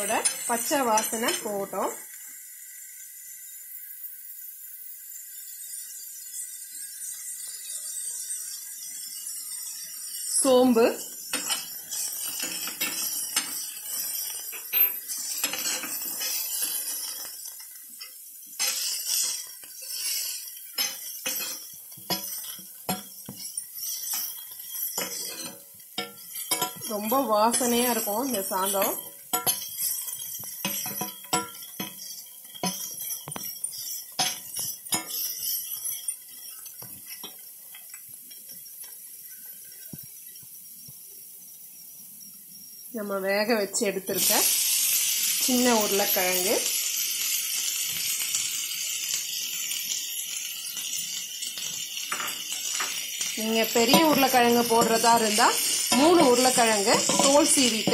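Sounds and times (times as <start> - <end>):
metal spatula scraping a pan: 0.0 - 2.0, 5.4 - 39.9, 44.1 - 57.9
oil sizzling: 0.0 - 57.9
onions frying hiss: 0.0 - 57.9
metal spatula clicking on pan: 51.6 - 57.9.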